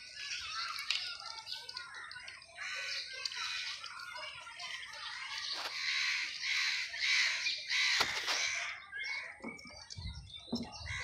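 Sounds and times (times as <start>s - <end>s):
crows cawing: 2.5s - 3.8s, 5.6s - 9.4s.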